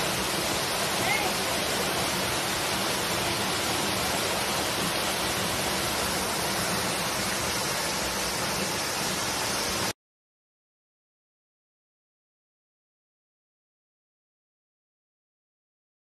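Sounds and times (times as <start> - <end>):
waterfall pouring onto rock: 0.0 - 10.0.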